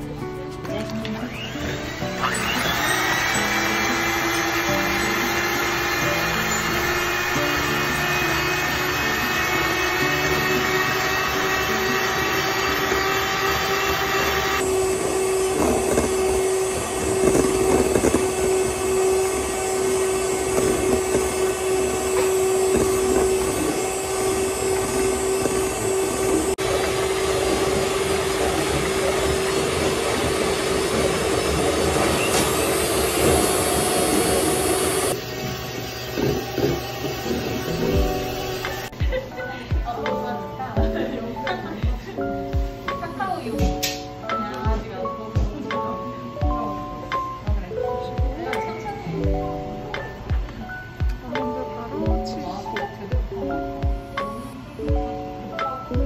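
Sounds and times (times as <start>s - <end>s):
electric hand mixer motor hum: 1.0s - 39.2s.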